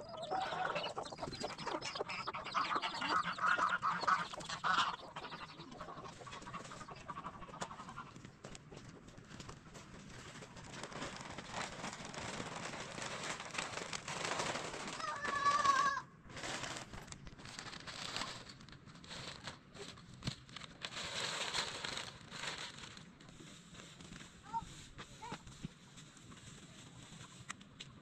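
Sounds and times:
plastic sheeting rustling: 0:09.2 - 0:27.5.

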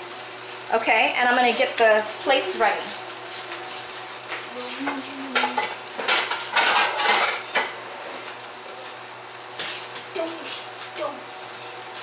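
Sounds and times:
stir-fry sizzling in a pan: 0:00.0 - 0:12.0
plates and dishes clattering: 0:04.9 - 0:07.8.

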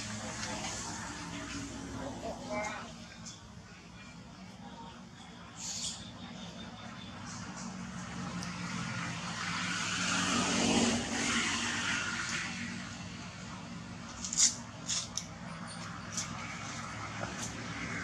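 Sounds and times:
passing vehicle rushing: 0:07.4 - 0:13.2.

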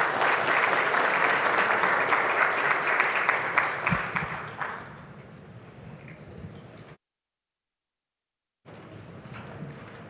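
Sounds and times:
audience applauding: 0:00.0 - 0:05.0.

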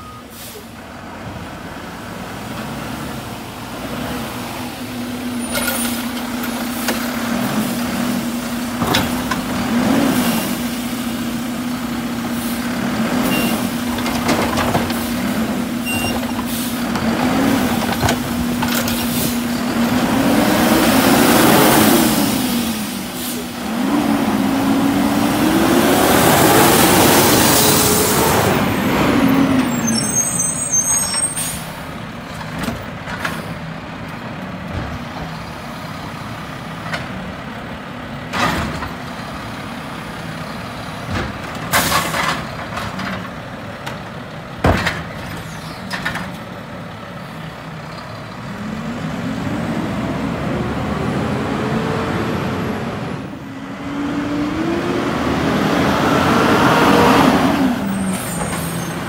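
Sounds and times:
garbage truck diesel engine: 0:00.0 - 0:59.0
air brake hiss: 0:00.2 - 0:00.8, 0:16.4 - 0:16.8, 0:22.0 - 0:23.5.

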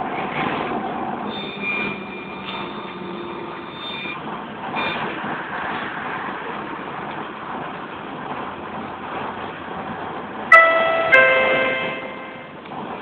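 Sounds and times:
road and tyre noise: 0:00.0 - 0:13.0
thin high tone: 0:10.5 - 0:12.5.

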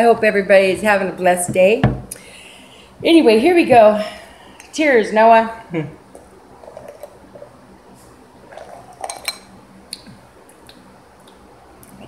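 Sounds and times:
glasses clinking and knocking: 0:08.6 - 0:09.5.

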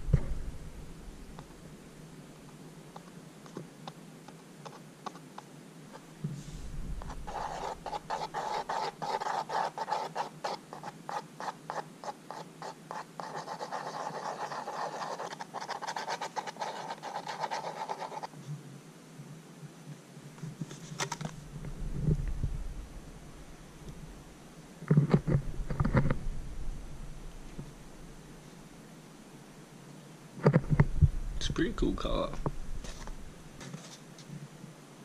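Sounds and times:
stick scraping paint on cardboard: 0:02.9 - 0:06.4, 0:07.0 - 0:18.4.

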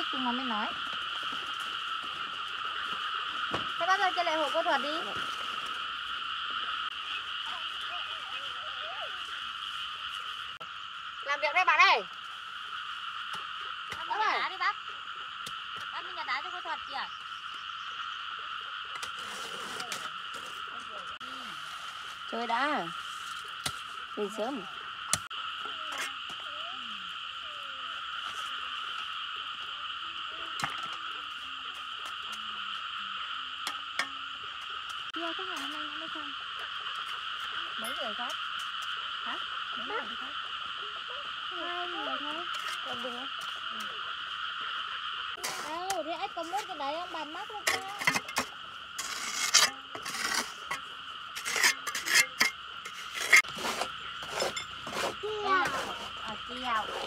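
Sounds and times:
frogs trilling chorus: 0:00.0 - 0:57.0
steady high hum: 0:00.0 - 0:57.0
rasping scraping strokes: 0:47.7 - 0:57.0.

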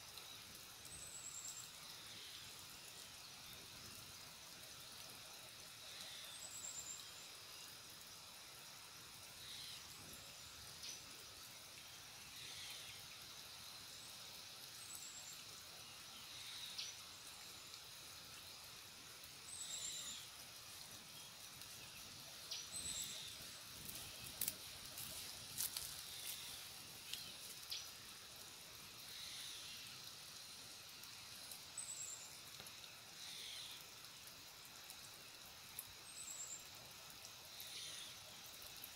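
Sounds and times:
steady high hiss: 0:00.0 - 0:38.9.

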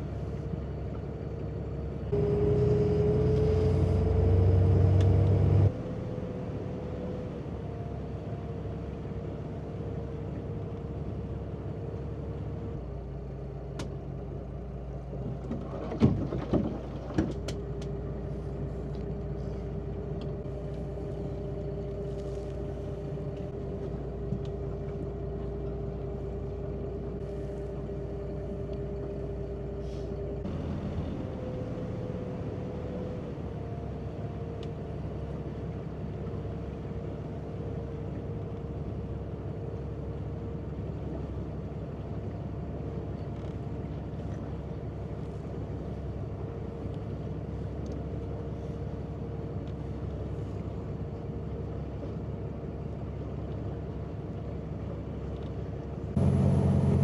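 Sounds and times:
engine drone: 0:00.0 - 0:57.0.

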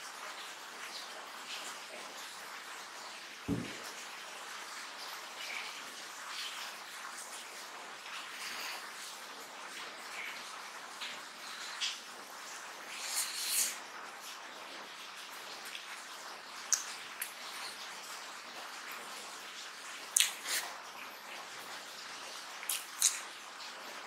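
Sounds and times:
chewing and mouth smacks: 0:16.6 - 0:17.8, 0:20.1 - 0:20.7, 0:22.6 - 0:23.2.

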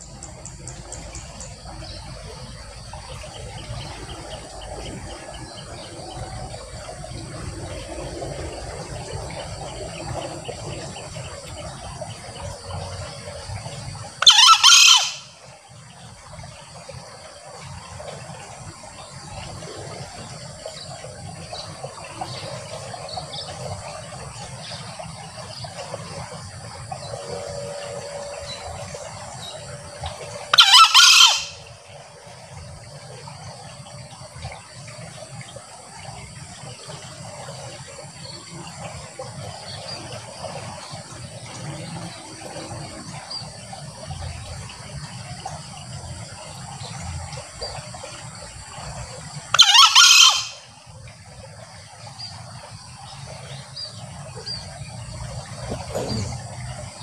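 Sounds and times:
junglefowl crowing: 0:14.2 - 0:15.3, 0:30.5 - 0:31.7, 0:49.5 - 0:50.7.

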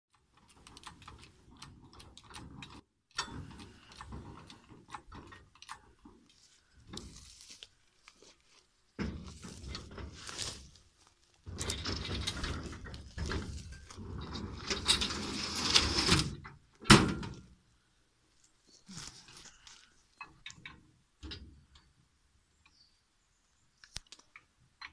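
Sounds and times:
log scraping against steel trailer: 0:03.2 - 0:08.4, 0:09.0 - 0:16.6.

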